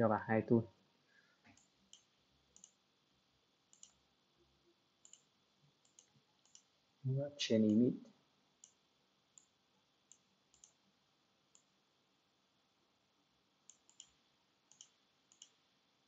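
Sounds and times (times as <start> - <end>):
computer mouse clicks: 1.4 - 2.8, 3.7 - 4.0, 5.0 - 6.7, 8.6 - 8.8, 9.4 - 10.8, 11.5 - 11.7, 13.7 - 15.6.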